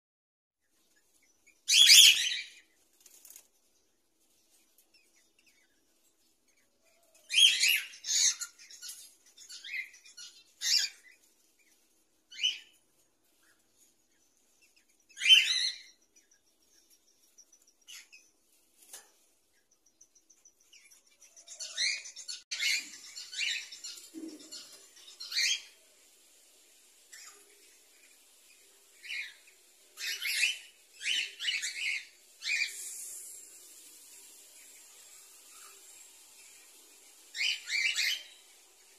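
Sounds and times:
cockatiels chirping: 1.6 - 3.4, 7.1 - 11.3, 12.3 - 12.8, 15.1 - 16.0, 29.0 - 33.2
wings flapping: 2.9 - 3.6.

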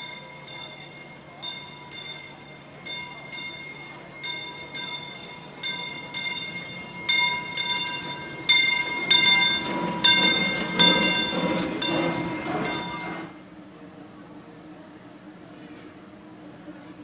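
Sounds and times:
locomotive bell ringing: 0.0 - 13.4
train rumbling past: 0.0 - 17.0.

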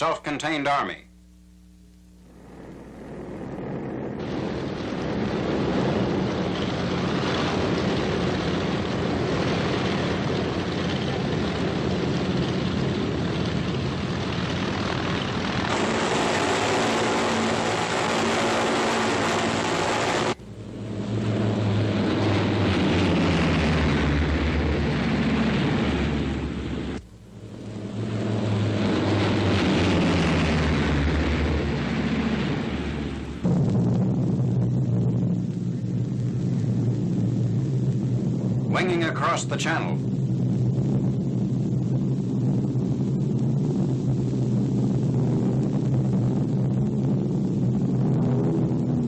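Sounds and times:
propeller aircraft engines droning: 0.0 - 49.0.

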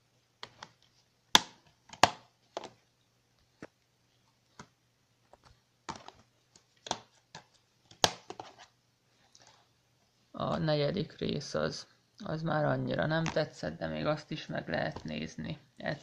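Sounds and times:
plastic cases clacking: 5.3 - 8.7.

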